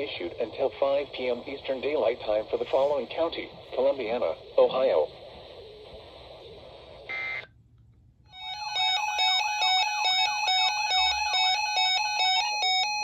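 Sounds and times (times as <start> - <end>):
weather radio alarm beeping: 8.4 - 13.0.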